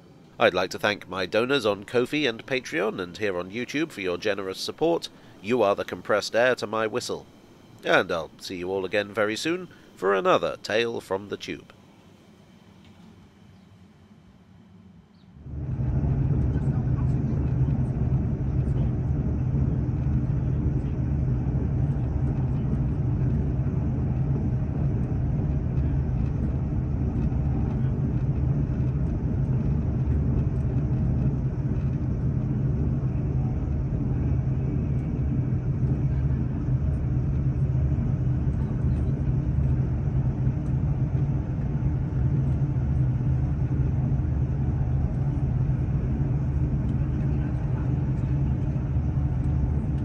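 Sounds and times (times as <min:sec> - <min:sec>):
train rumbling from inside carriage: 0:15.4 - 0:50.0.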